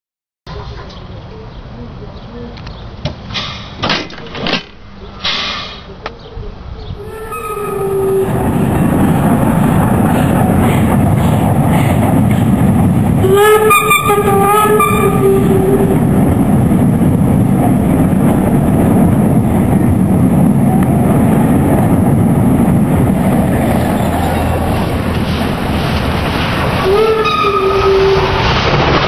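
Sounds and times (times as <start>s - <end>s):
train rumbling across bridge: 4.8s - 29.0s
steam whistle blowing: 7.0s - 8.4s, 13.2s - 16.0s, 26.8s - 28.6s.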